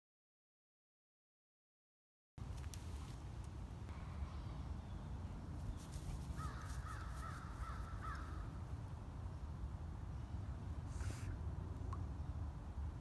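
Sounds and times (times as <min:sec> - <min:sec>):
steady low rumble: 0:03.3 - 0:13.0.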